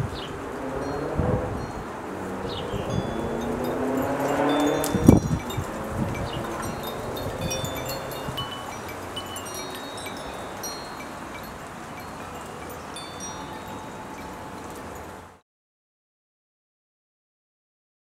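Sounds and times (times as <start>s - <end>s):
wind chimes tinkling: 0.0s - 15.4s
wind hissing: 0.0s - 15.4s.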